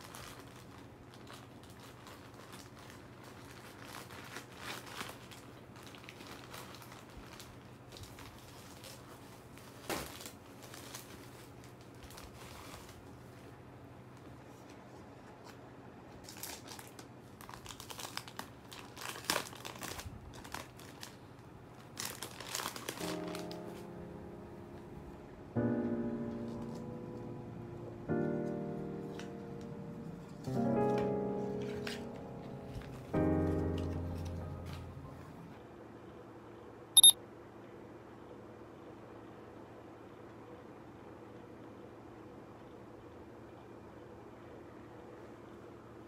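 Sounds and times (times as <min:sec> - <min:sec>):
plastic packaging crinkling: 0:00.0 - 0:13.4, 0:16.2 - 0:24.1, 0:28.4 - 0:35.0
soft piano music: 0:22.0 - 0:35.6.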